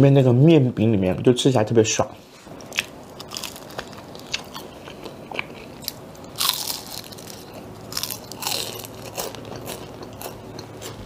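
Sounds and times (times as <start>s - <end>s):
crunchy bites and chewing of bread: 2.6s - 11.0s.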